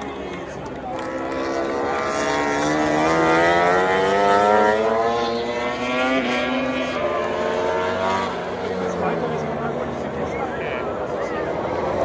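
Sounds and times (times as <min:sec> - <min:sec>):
racing motorcycle accelerating past: 0:00.9 - 0:10.1.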